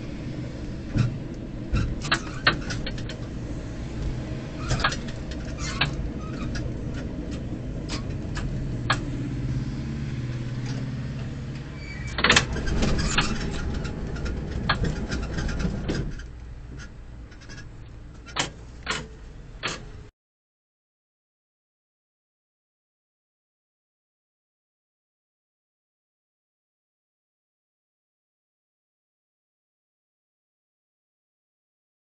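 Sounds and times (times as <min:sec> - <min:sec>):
tram rumbling: 0:00.0 - 0:20.1
clacks and rattles: 0:00.9 - 0:03.4, 0:04.0 - 0:09.1, 0:10.6 - 0:20.0
short squeal: 0:11.7 - 0:12.3.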